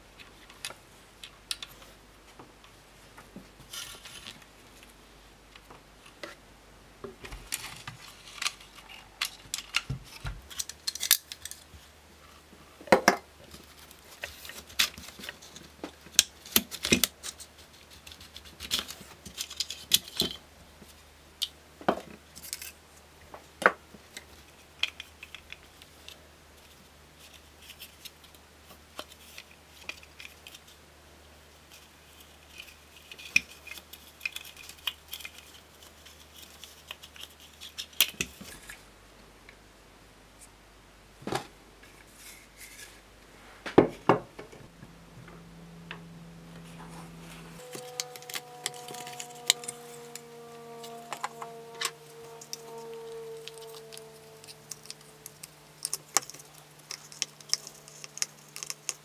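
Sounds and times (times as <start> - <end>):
plastic parts clicking and rattling: 7.3 - 11.7, 13.6 - 20.4, 47.6 - 59.0.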